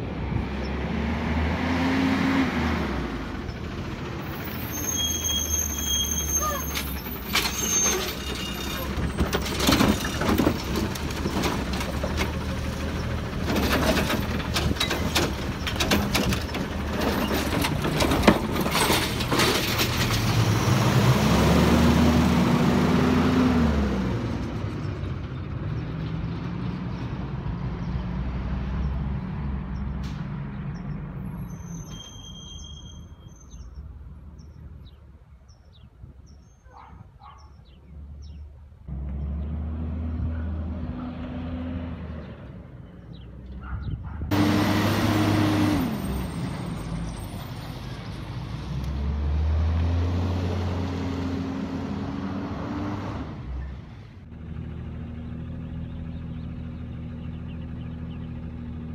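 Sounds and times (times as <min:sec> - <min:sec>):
garbage truck engine: 0:01.0 - 0:26.6, 0:44.3 - 0:58.9
truck clanks and rattles: 0:02.8 - 0:22.9, 0:23.6 - 0:27.1
birds chirping: 0:28.8 - 0:41.0, 0:42.1 - 0:44.2, 0:55.5 - 0:58.9.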